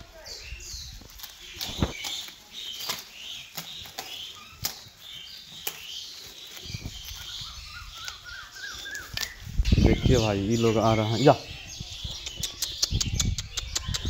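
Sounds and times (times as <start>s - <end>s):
goats tearing at leaves: 0.0s - 11.2s.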